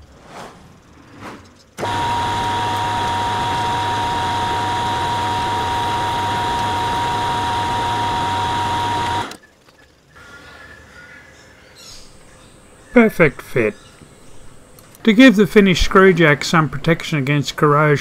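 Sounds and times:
metal lathe drilling steel: 1.8s - 9.4s.

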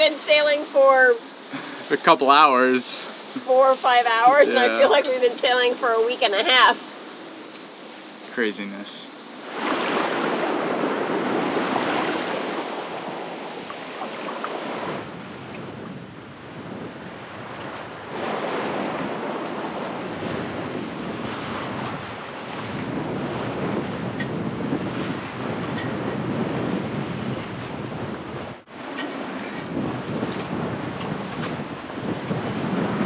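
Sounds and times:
waves rushing past hull: 0.0s - 33.0s
wind buffeting microphone: 9.4s - 33.0s.

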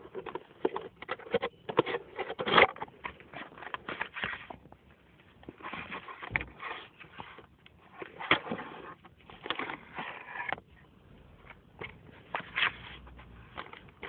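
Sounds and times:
cardboard box scraping: 5.5s - 10.6s, 12.0s - 14.0s.

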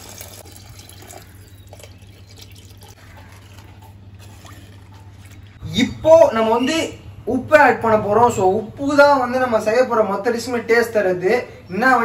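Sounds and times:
water trickling into clay pot: 0.0s - 5.6s.

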